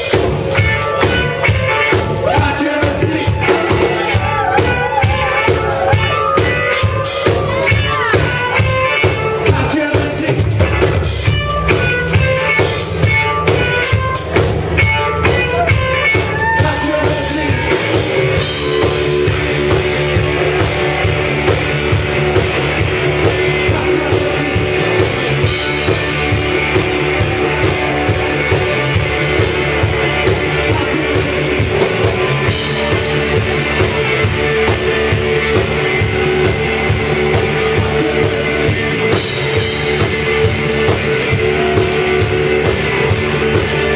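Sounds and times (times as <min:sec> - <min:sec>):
rock band playing loud: 0:00.0 - 0:43.9
person singing: 0:00.6 - 0:10.6, 0:15.3 - 0:19.3, 0:23.1 - 0:33.0, 0:36.0 - 0:39.8.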